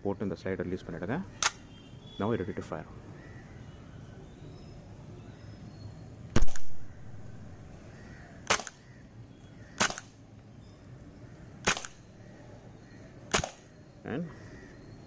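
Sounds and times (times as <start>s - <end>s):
airsoft pistol shots: 6.4s - 6.9s, 8.4s - 8.8s, 9.8s - 10.2s, 11.6s - 12.0s, 13.3s - 13.7s.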